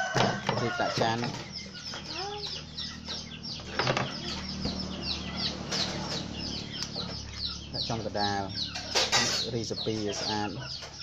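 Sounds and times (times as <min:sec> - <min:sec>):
chickens clucking: 0:00.0 - 0:11.0
chicks peeping: 0:00.0 - 0:11.0.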